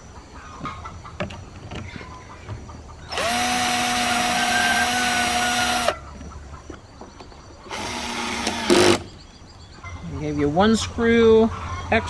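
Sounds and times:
cordless drill whining into wood: 3.1 - 5.9, 7.7 - 9.1.

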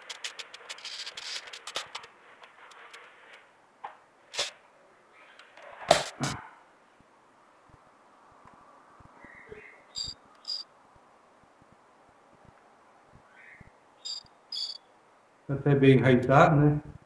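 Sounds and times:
rustling and scraping in plastic pot: 0.0 - 3.5.

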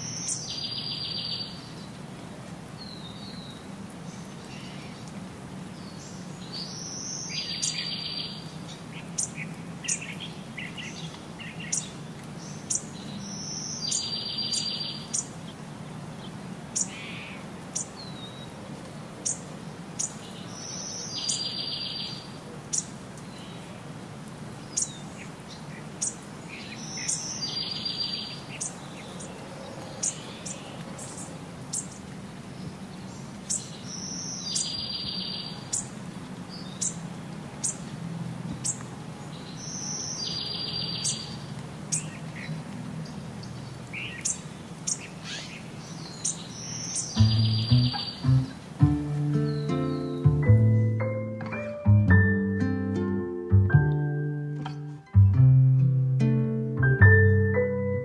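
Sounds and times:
bird calling high phrase: 46.8 - 51.0.

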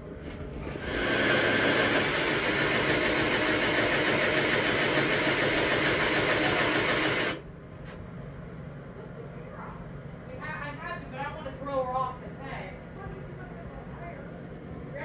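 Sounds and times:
power tool motor running: 0.6 - 7.4.

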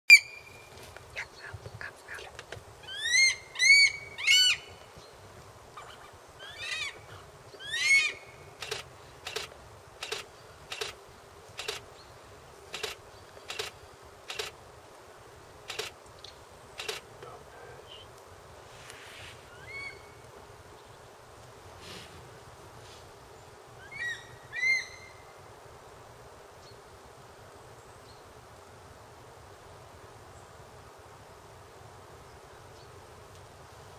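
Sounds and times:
raptor harsh calls: 2.8 - 4.8, 5.8 - 11.0, 19.3 - 20.2.

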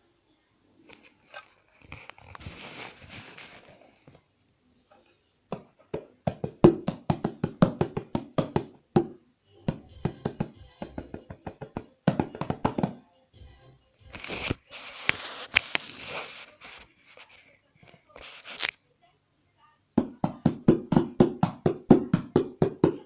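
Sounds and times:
rustling shaker noise: 0.8 - 4.2, 14.0 - 18.9.

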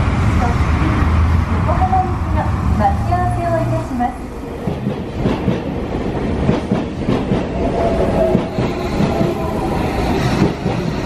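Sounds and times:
train wheels clattering over rail joints: 4.6 - 9.4.

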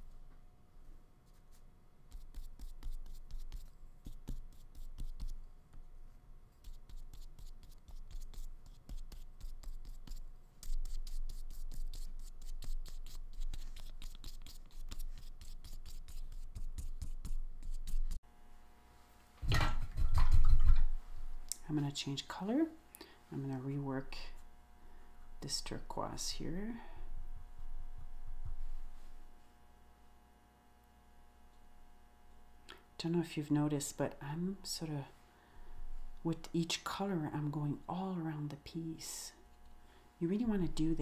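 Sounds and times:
paintbrush scratching on paper: 1.2 - 5.5, 6.5 - 18.2.

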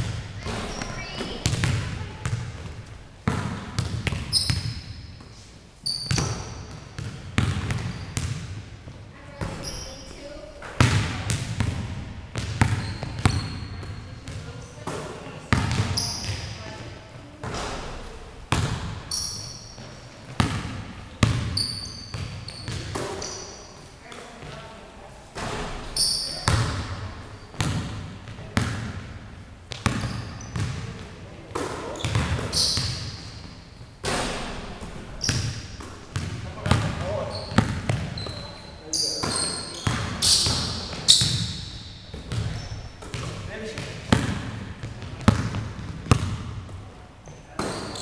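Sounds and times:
basketball bouncing on wooden floor: 0.0 - 4.8, 6.1 - 8.6, 10.8 - 16.5, 20.4 - 23.3, 29.7 - 30.8, 32.0 - 33.1, 35.2 - 38.4, 39.2 - 46.7
sneaker squeaks: 0.4 - 2.7, 3.8 - 8.4, 9.3 - 10.9, 12.4 - 14.5, 15.5 - 16.7, 19.0 - 20.1, 21.2 - 24.6, 25.5 - 27.8, 29.8 - 30.9, 31.6 - 44.0, 47.2 - 48.0.

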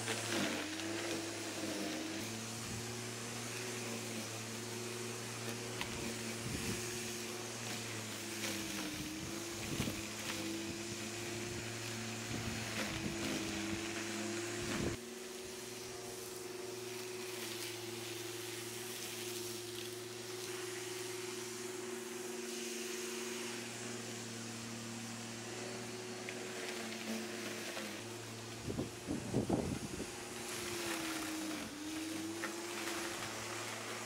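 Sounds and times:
electric lawnmower humming: 0.0 - 34.0
wind buffeting microphone: 28.6 - 30.1.

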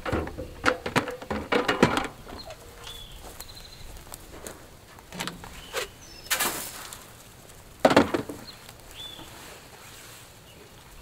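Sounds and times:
knocks and rattles of wooden coop: 0.0 - 2.6, 7.8 - 8.5.

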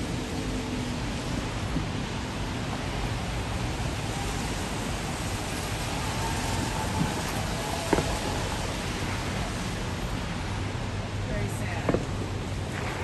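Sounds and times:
outdoor noise rush: 0.0 - 13.0.

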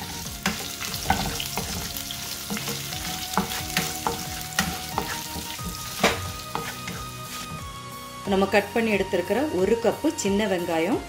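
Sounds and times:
spices sizzling in hot oil: 0.0 - 8.2.

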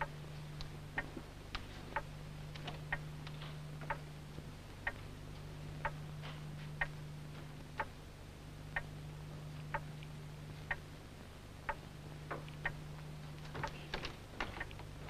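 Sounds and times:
clock ticking: 0.0 - 4.1, 4.8 - 5.0, 5.8 - 6.2, 6.8 - 7.0, 7.8 - 8.0, 8.7 - 9.0, 9.6 - 11.0, 11.6 - 15.0
steady low hum: 0.0 - 15.0.

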